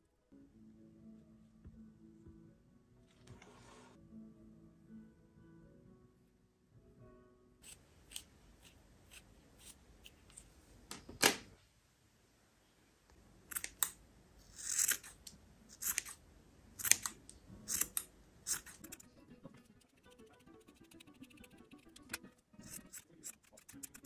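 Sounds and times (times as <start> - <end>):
scissors snipping yarn: 7.6 - 10.4, 13.5 - 16.2, 16.8 - 19.1, 22.0 - 24.0.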